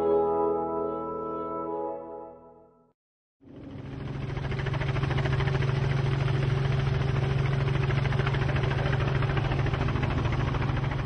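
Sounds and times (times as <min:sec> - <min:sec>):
helicopter rotor drone: 0:03.4 - 0:11.0.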